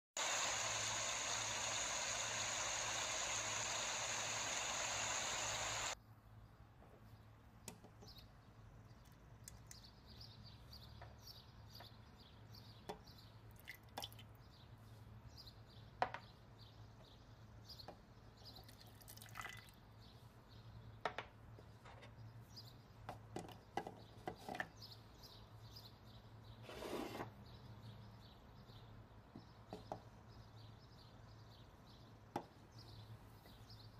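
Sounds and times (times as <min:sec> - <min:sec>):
low hum: 0:00.2 - 0:06.0
soft pour: 0:18.6 - 0:19.8.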